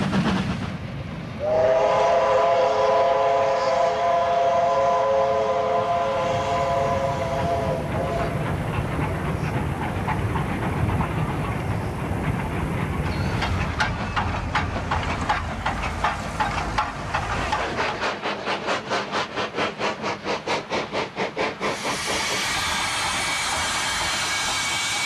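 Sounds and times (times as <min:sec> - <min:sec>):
locomotive running rumble: 0:00.0 - 0:25.0
steam locomotive whistle: 0:01.4 - 0:08.4, 0:22.0 - 0:25.0.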